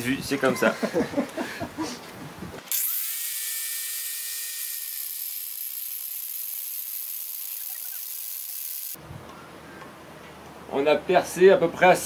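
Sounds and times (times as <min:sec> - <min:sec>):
angle grinder whine: 0:02.7 - 0:09.0.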